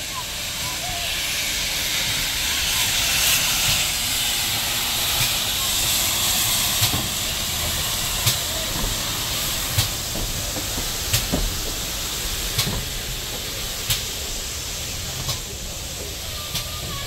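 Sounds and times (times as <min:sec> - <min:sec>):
steam locomotive hissing steam: 0:00.0 - 0:17.0.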